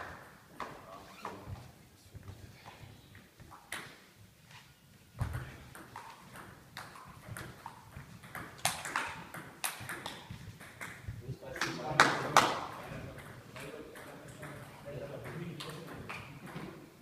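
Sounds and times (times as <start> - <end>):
ball bouncing on table: 5.2 - 16.8
table tennis ball hitting bats: 5.2 - 16.9.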